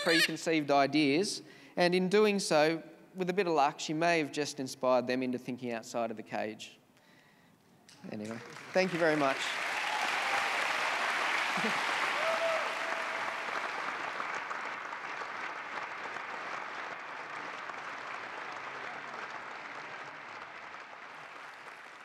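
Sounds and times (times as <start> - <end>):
large audience applauding: 0.0 - 0.3, 8.1 - 22.0.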